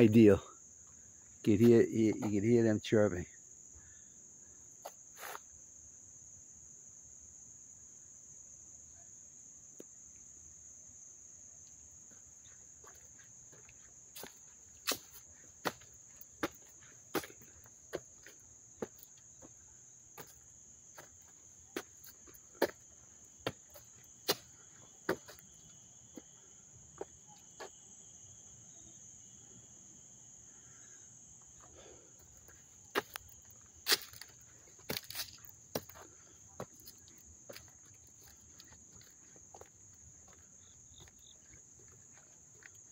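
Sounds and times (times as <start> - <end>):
crickets chirping trill: 0.0 - 42.9
lower insect trill: 0.0 - 42.9
footsteps on paved path: 1.5 - 2.4, 12.1 - 26.4, 27.0 - 27.8, 31.4 - 42.9.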